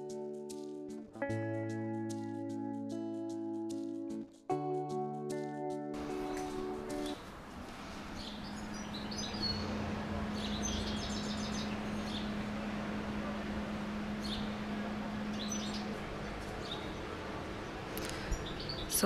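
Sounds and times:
urban background noise: 0.0s - 19.0s
small birds chirping: 6.0s - 7.2s, 8.1s - 12.8s, 14.1s - 19.0s
constant low hum: 6.0s - 19.0s.

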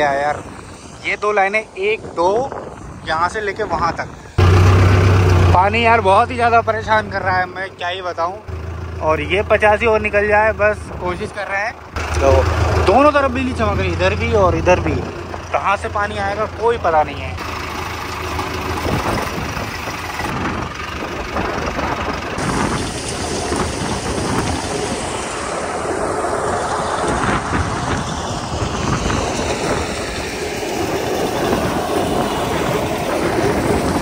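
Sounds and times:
grain thresher running: 14.9s - 34.0s.

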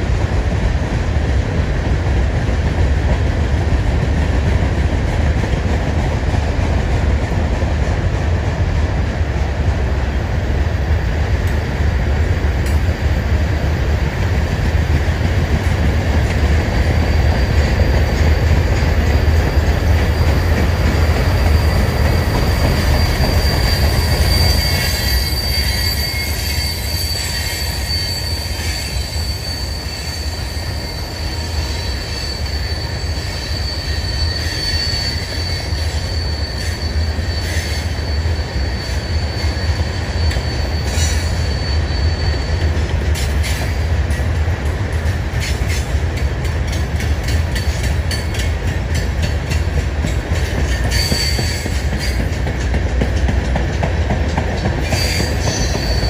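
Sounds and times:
high wheel squeal: 16.2s - 44.3s, 46.7s - 52.7s, 54.8s - 56.0s.

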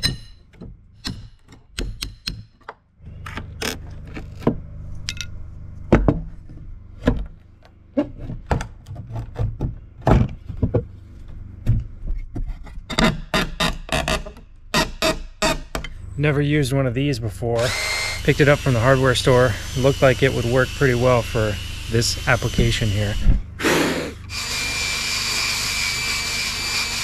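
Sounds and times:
metal tools knocking on wood: 0.0s - 2.8s.

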